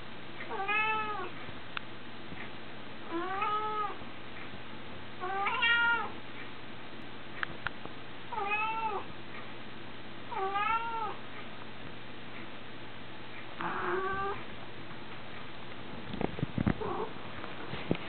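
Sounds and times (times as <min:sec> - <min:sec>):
cat meowing: 0:00.5 - 0:01.3, 0:03.1 - 0:04.0, 0:05.2 - 0:06.1, 0:08.3 - 0:09.1, 0:10.3 - 0:11.2, 0:13.6 - 0:14.4.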